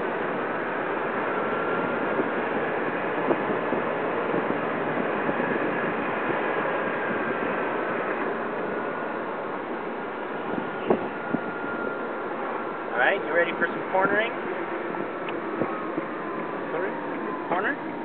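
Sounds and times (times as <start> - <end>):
tyre and wind noise: 0.0 - 18.0
faint high whine: 6.6 - 18.0.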